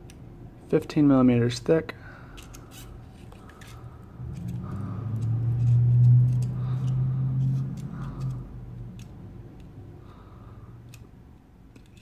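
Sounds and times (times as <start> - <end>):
low steady hum: 0.0 - 12.0
metal calipers clicking: 2.4 - 9.8, 11.7 - 12.0.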